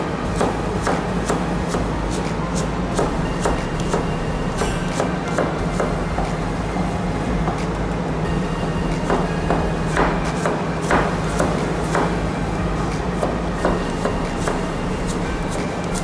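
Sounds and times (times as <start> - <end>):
steady low hum: 0.0 - 16.0
knife chopping on cutting board: 0.4 - 6.3, 9.0 - 12.2.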